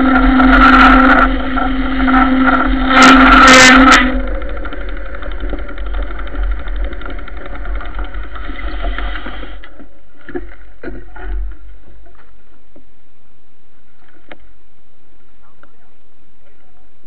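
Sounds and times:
scattered clicks: 0:00.0 - 0:09.8
bike rolling over gravel: 0:00.0 - 0:12.8.

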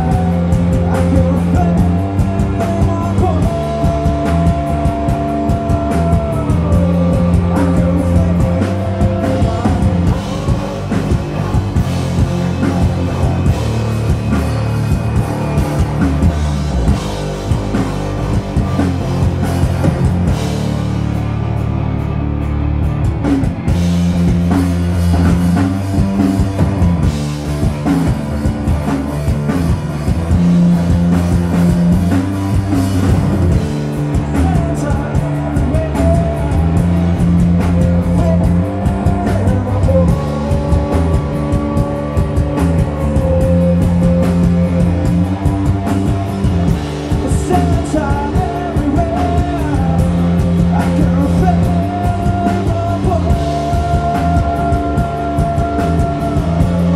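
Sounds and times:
person singing: 0:00.0 - 0:17.8, 0:30.1 - 0:56.9
bass guitar: 0:00.0 - 0:56.9
drum kit: 0:00.0 - 0:56.9
electric guitar: 0:00.0 - 0:56.9.

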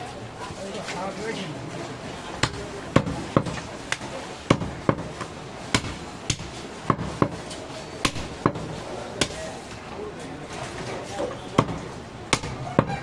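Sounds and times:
knife chopping meat and bone: 0:04.5 - 0:07.4, 0:11.6 - 0:12.9.

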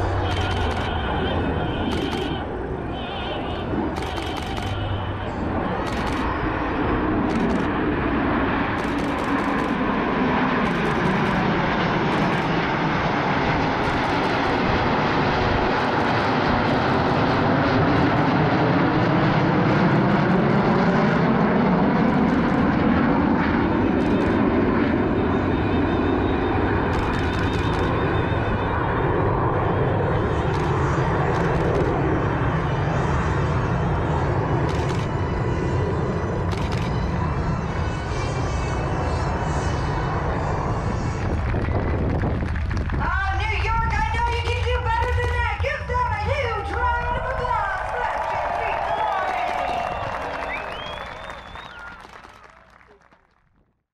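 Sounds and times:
jet aircraft flying past: 0:00.0 - 0:53.4
camera shutter clicks: 0:00.2 - 0:01.0, 0:01.8 - 0:02.4, 0:03.9 - 0:05.0, 0:05.8 - 0:06.4, 0:07.3 - 0:07.7, 0:08.8 - 0:09.8, 0:10.6 - 0:11.4, 0:12.1 - 0:12.5, 0:13.8 - 0:14.6, 0:26.9 - 0:27.9, 0:34.7 - 0:35.1, 0:36.5 - 0:37.0.

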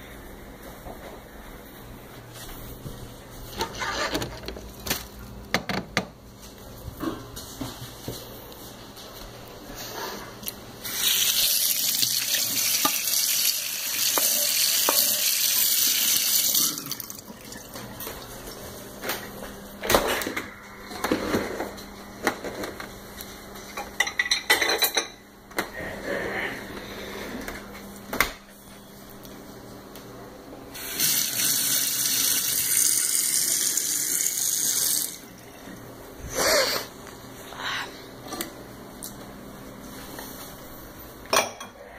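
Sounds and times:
kitchen tap running into sink: 0:10.8 - 0:18.4, 0:30.8 - 0:35.2
dishes clattering into dishwasher rack: 0:23.8 - 0:25.2.

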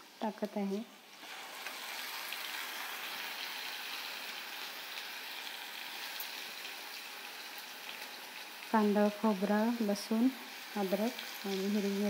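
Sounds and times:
oil sizzling in a saucepan: 0:00.0 - 0:12.0.

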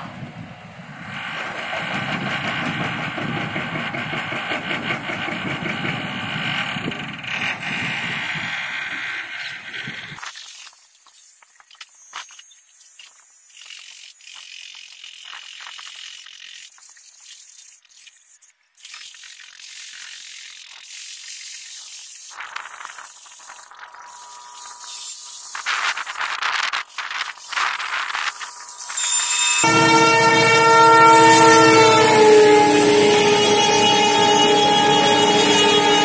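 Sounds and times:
freight train approaching: 0:00.0 - 0:09.4, 0:28.6 - 0:36.0
train horn tone: 0:29.0 - 0:36.0.

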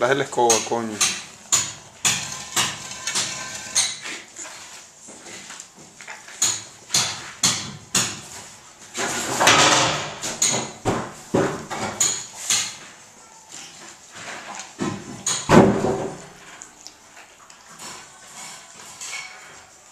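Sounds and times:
dog licking puppies: 0:16.2 - 0:19.9.

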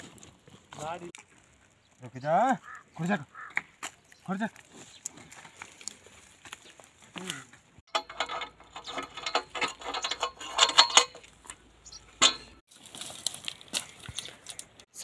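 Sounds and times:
rustling in dry straw: 0:12.7 - 0:14.6.

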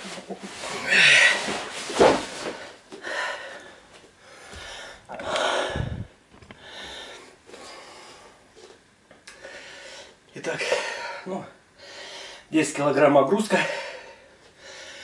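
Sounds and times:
man breathing hard: 0:02.9 - 0:08.5, 0:09.3 - 0:12.5, 0:13.6 - 0:15.0.

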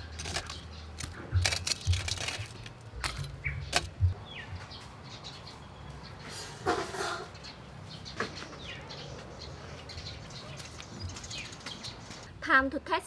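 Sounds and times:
sharp clicks and knocks: 0:00.0 - 0:04.2.

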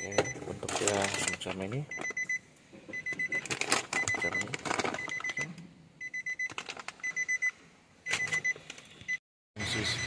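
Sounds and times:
electronic warning chime beeps: 0:00.0 - 0:00.4, 0:01.0 - 0:10.0
plastic bag rustling: 0:00.5 - 0:01.6, 0:03.3 - 0:05.4, 0:06.5 - 0:07.1.

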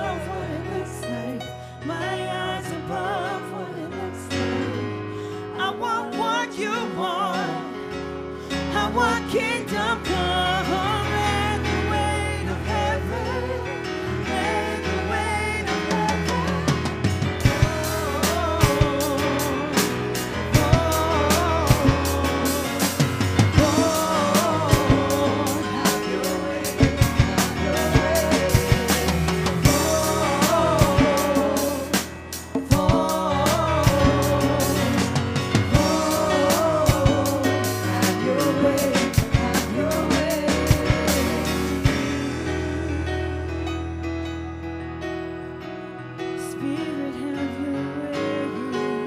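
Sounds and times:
worship band chords and bass: 0:00.0 - 0:49.0
singers singing free melodies: 0:08.6 - 0:43.4
drum kit hits: 0:15.9 - 0:42.4.

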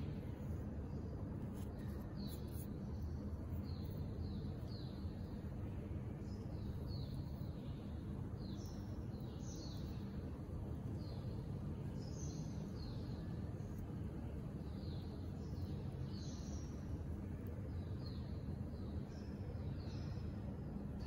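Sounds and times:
low background rumble: 0:00.0 - 0:21.0
small bird chirping: 0:01.4 - 0:05.5, 0:06.2 - 0:10.2.

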